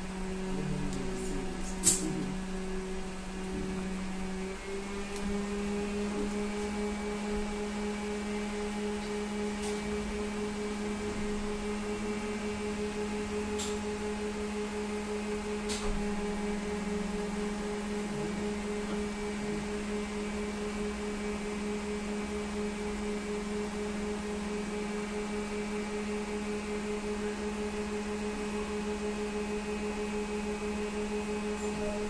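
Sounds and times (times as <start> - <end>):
steady electric hum: 0.0 - 32.0.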